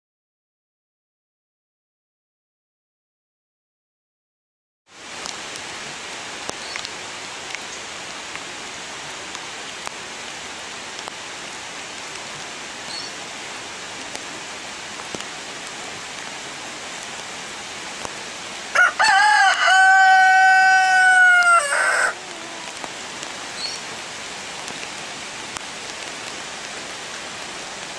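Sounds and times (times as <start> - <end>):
flowing run-off water: 4.9 - 27.9
heavy rain hiss: 4.9 - 27.9
rooster crowing: 18.7 - 22.8.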